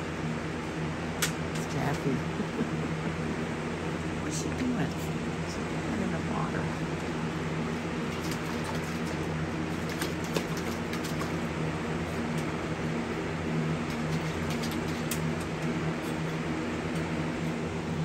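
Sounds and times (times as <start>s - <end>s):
steady low hum: 0.0s - 18.0s
puppy splashing water in bowl: 7.7s - 12.8s, 13.5s - 16.4s.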